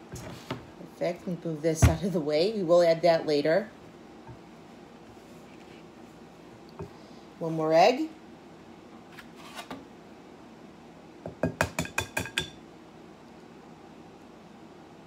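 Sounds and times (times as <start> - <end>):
egg tapped on glass bowl: 11.2 - 12.6.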